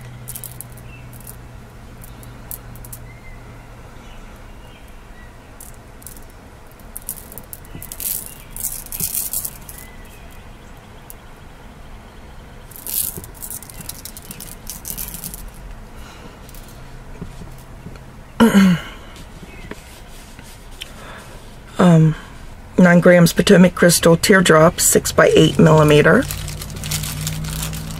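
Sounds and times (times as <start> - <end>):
beads clicking and rattling: 0.0 - 1.4, 2.0 - 3.0, 5.6 - 10.4, 12.7 - 15.7, 16.4 - 16.8, 25.3 - 27.9.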